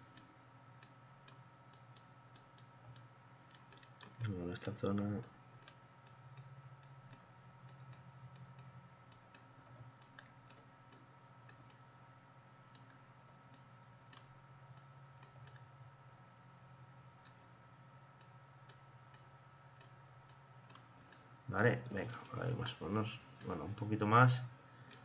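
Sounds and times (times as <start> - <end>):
low steady hum: 0.0 - 25.0
computer mouse clicks: 0.1 - 4.3, 5.2 - 11.8, 18.2 - 21.2.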